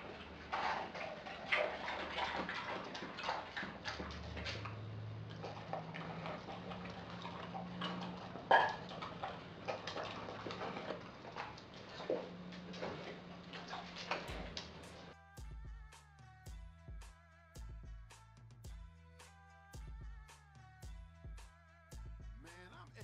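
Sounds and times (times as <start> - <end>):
dog chewing with wet smacks: 0.0 - 15.1.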